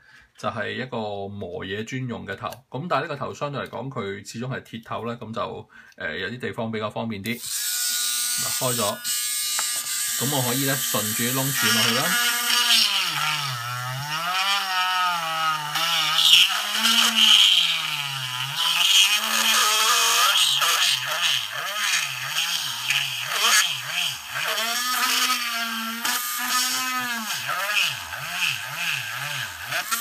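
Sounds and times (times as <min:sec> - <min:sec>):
bit grinding plastic: 0:07.3 - 0:30.0
rotary tool motor whine: 0:07.4 - 0:30.0.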